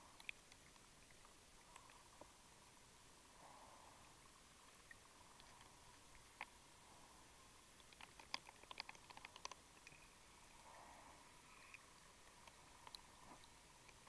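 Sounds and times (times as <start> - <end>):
sharp underwater clicks: 0.0 - 2.3, 4.8 - 6.6, 7.8 - 10.2, 11.5 - 14.0
faint high hum: 0.0 - 8.5, 9.6 - 14.0.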